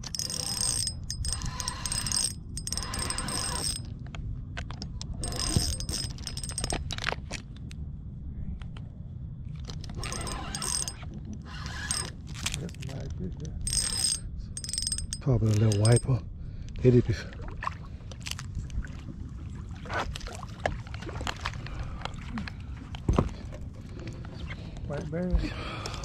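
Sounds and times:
fishing reel drag buzzing: 0.0 - 3.9, 5.2 - 6.8, 10.0 - 12.2, 13.7 - 16.0
low steady rumble: 0.0 - 19.8.

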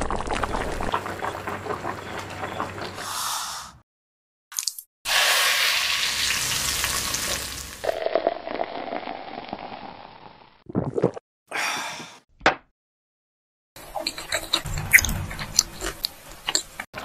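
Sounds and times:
hot oil sizzling on garlic: 5.1 - 7.9.

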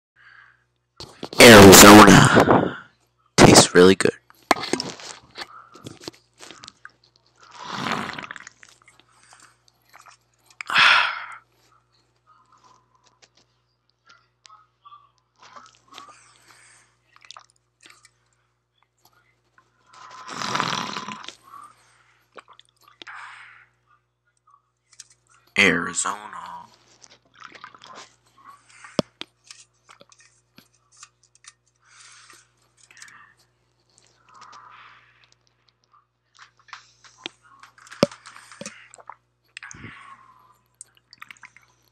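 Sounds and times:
mouth noises: 1.0 - 2.8, 3.4 - 6.7
person swallowing and breathing: 1.0 - 2.8, 4.4 - 11.5, 19.6 - 23.3, 31.8 - 41.9
small mouth clicks: 37.2 - 39.9.

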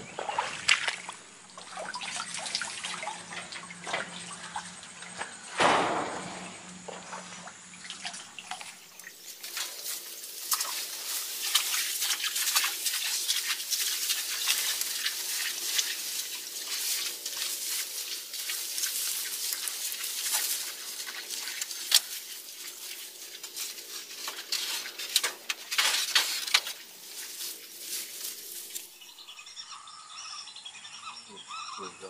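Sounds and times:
netting rustling and crackling: 9.2 - 29.2.

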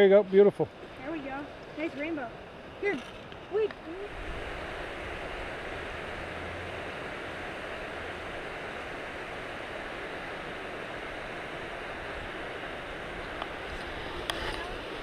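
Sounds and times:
steady rushing noise: 0.0 - 15.0.

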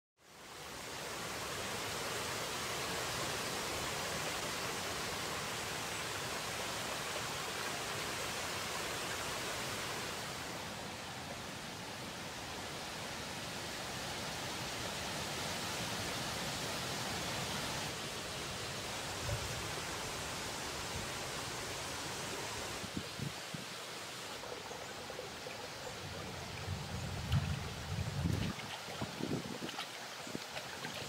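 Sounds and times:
stream over stones: 0.2 - 31.0.

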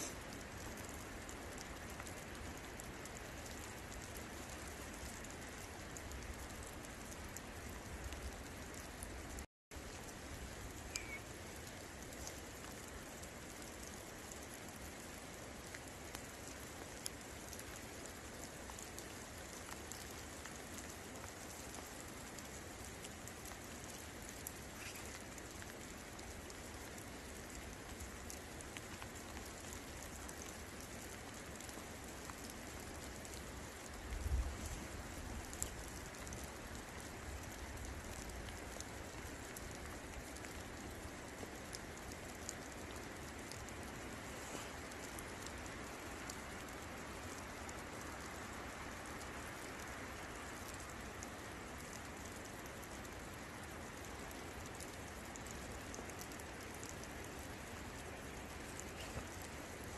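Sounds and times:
steady rain falling: 0.0 - 59.9
close drops ticking: 10.8 - 11.3.

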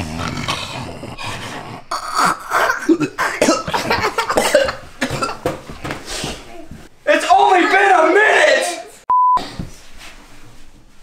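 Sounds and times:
throat noises: 0.0 - 5.5
person coughing: 2.0 - 5.5.

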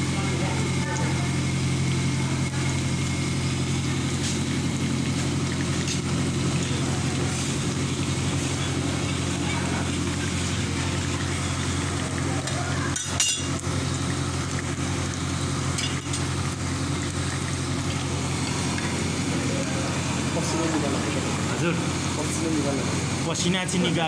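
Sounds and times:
dumplings deep-frying in oil: 0.0 - 24.0
metal utensil clink: 12.9 - 13.6.

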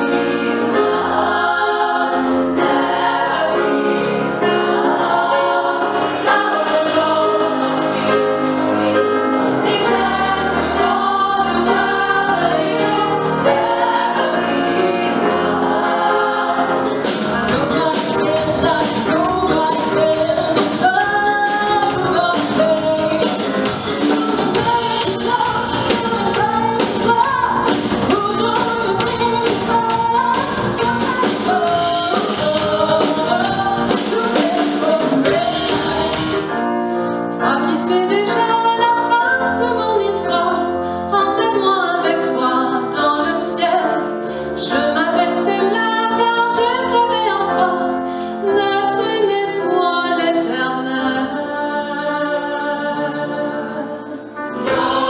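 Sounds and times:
women singing in harmony: 0.0 - 36.6, 37.4 - 55.0
drum kit beat: 16.9 - 36.8, 54.6 - 55.0.

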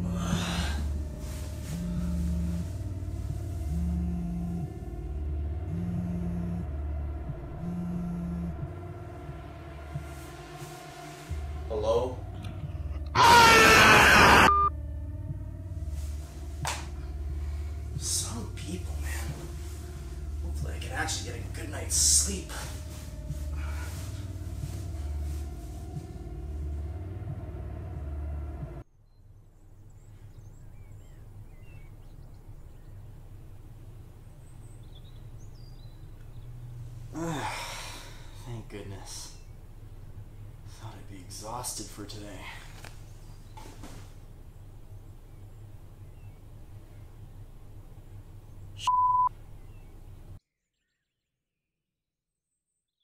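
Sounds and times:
loud pulsing low rumble: 0.0 - 13.2, 14.4 - 28.9, 29.5 - 50.4
steady hum: 0.0 - 28.8, 29.5 - 50.4
loud electronic beep: 13.9 - 14.7
small birds chirping: 28.6 - 51.3.

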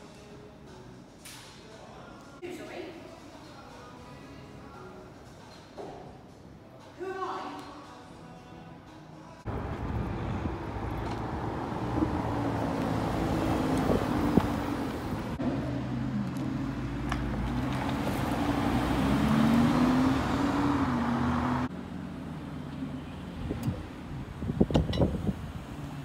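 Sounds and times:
sports car engine pulling away: 9.5 - 26.0.

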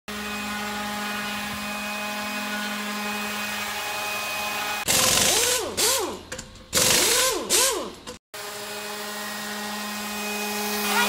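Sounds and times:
table saw motor whine: 0.1 - 4.9, 8.4 - 11.0
saw blade cutting wood: 6.8 - 11.0.

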